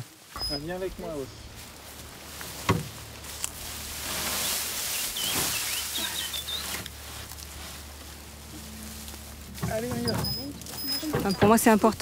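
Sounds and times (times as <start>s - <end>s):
rustling: 0.0s - 12.0s
small bird chirping: 4.4s - 6.9s.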